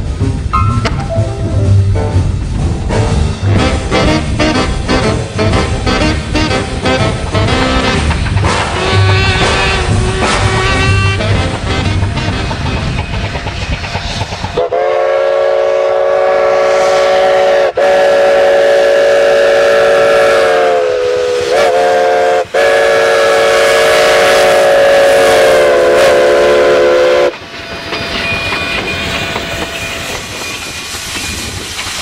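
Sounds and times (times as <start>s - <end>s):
locomotive running clatter: 0.0s - 15.4s, 24.2s - 32.0s
steam hissing: 1.2s - 32.0s
steam whistle chord blasts: 3.3s - 13.0s, 14.6s - 27.4s.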